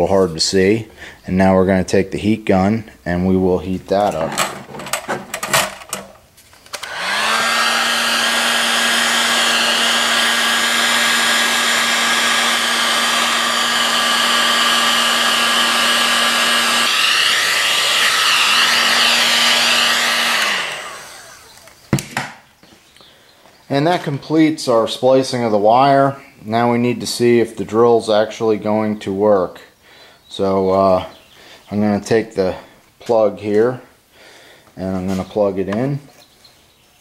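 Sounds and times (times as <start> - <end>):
heat gun fan blowing: 3.9 - 22.0.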